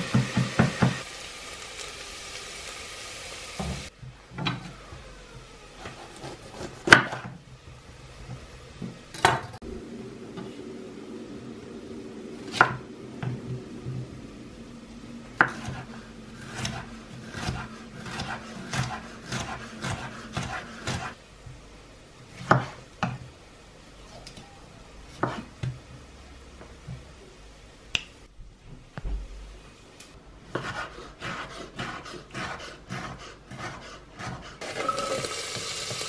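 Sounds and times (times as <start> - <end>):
knife chopping on wooden board: 5.8 - 7.4, 15.4 - 21.2, 22.4 - 23.2, 25.2 - 25.5, 30.5 - 34.6
low steady hum: 7.4 - 19.8.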